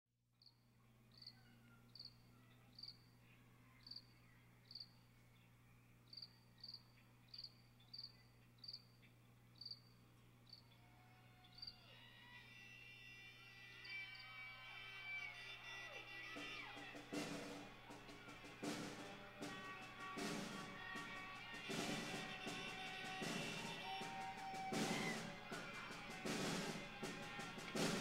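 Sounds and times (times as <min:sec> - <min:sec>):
high cricket-like chirps: 0:00.4 - 0:03.1, 0:03.8 - 0:05.0, 0:06.1 - 0:08.9, 0:09.6 - 0:10.7.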